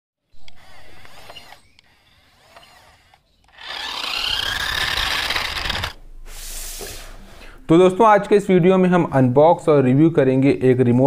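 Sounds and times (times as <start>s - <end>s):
toy car motor whining: 0.3s - 6.0s.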